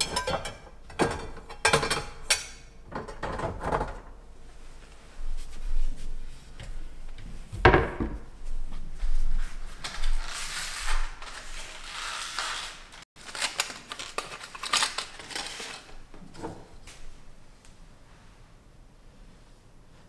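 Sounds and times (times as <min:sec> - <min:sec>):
plastic blister pack crinkling: 0:11.2 - 0:16.0.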